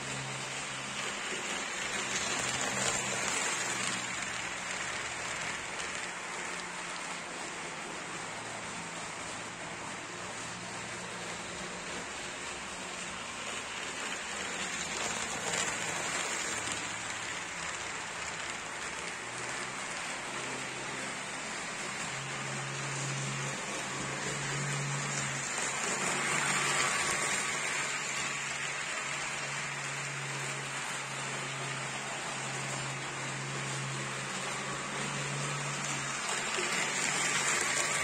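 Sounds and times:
model train rushing hiss: 21.3s - 38.0s.

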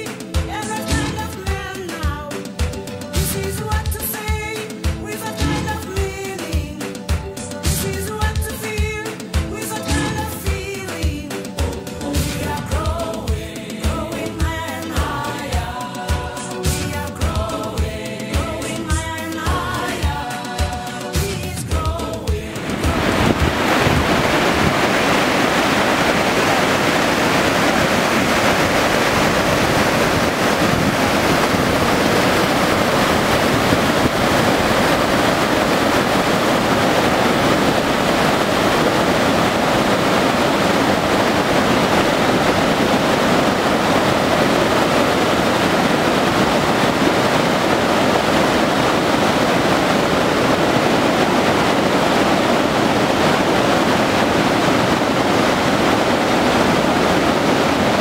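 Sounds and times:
rushing white water: 0.0s - 58.0s.

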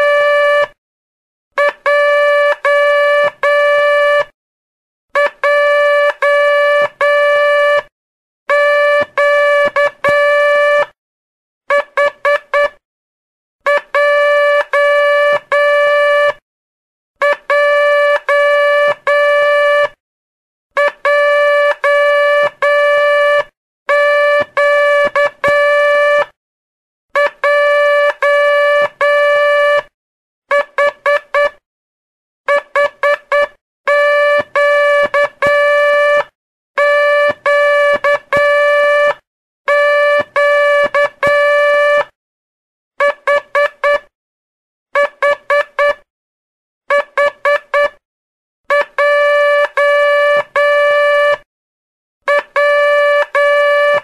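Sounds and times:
morse code beeps: 20.8s - 26.2s, 32.5s - 36.2s, 36.8s - 42.1s, 48.7s - 51.4s, 52.6s - 54.0s.

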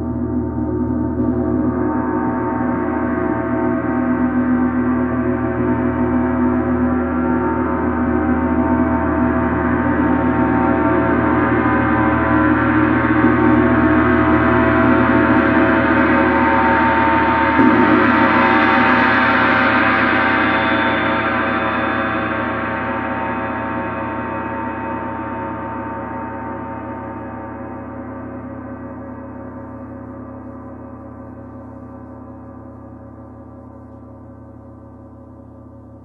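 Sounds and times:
gong ringing: 5.5s - 25.9s.

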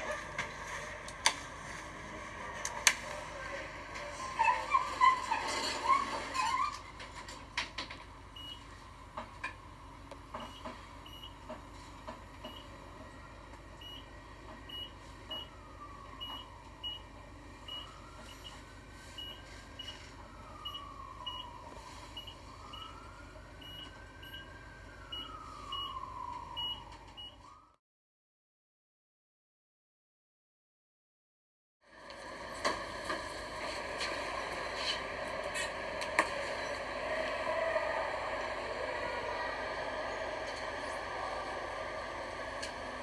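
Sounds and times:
elevator low hum: 0.0s - 21.6s, 31.9s - 43.0s
elevator motor whine: 31.9s - 43.0s.

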